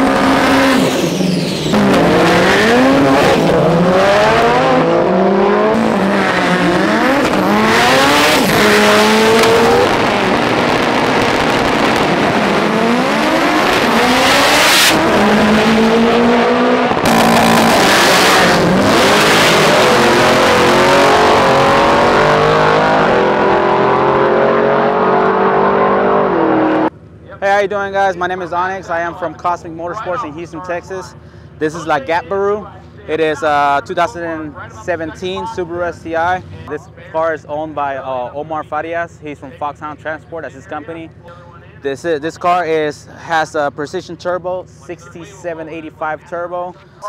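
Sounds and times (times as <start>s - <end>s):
racing car engine revving: 0.0s - 26.9s
tyre squeal: 0.5s - 2.2s.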